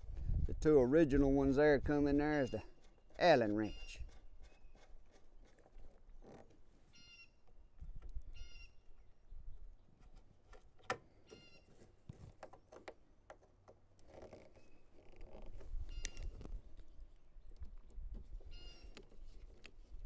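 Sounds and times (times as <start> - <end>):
bird calling: 2.3 - 4.9, 6.9 - 7.4, 8.3 - 8.9, 11.2 - 11.8, 18.5 - 19.1.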